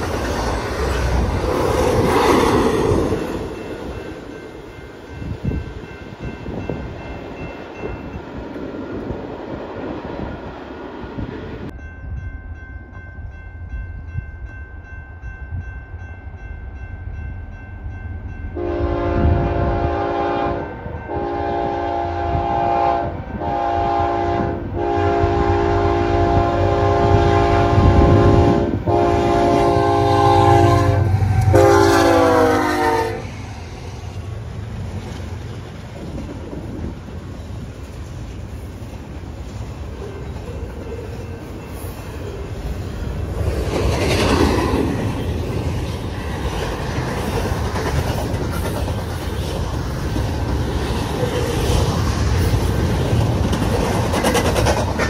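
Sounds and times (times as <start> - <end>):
crossing bell ringing: 0.0 - 8.5, 11.7 - 19.4, 20.2 - 22.0, 39.9 - 43.3
train wheels rattling over rails: 0.0 - 9.6, 26.8 - 55.0
diesel locomotives rumbling: 0.0 - 55.0
locomotive air horn blasts: 18.6 - 33.3.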